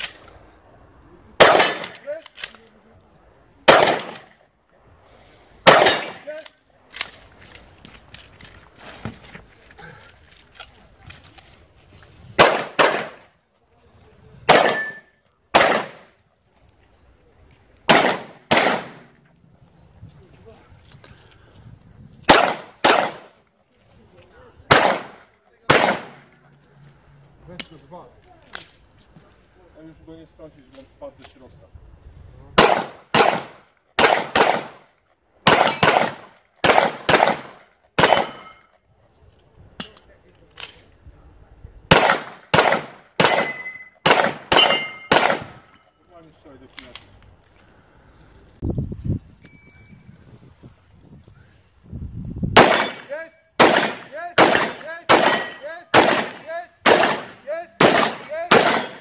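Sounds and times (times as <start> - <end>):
pistol shots with echo: 1.4 - 2.1, 3.7 - 4.3, 5.6 - 6.3, 12.4 - 13.3, 14.5 - 16.2, 17.9 - 19.2, 22.3 - 23.3, 24.7 - 26.3, 32.6 - 38.6, 41.9 - 45.7, 52.6 - 59.0.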